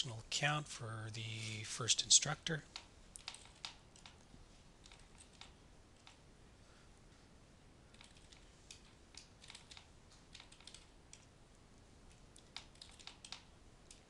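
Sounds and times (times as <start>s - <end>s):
computer keyboard typing: 2.7s - 4.2s, 4.8s - 6.2s, 7.9s - 11.3s, 12.3s - 14.0s.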